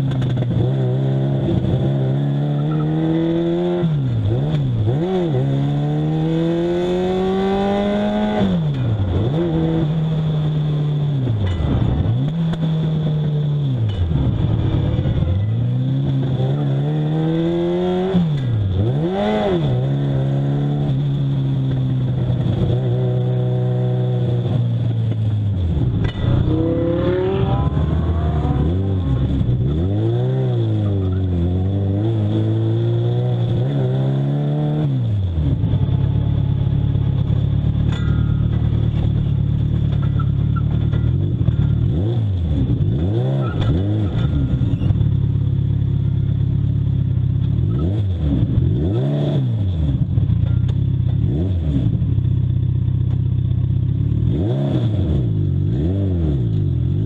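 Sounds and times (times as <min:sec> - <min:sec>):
motorcycle engine revving: 0:00.0 - 0:57.0.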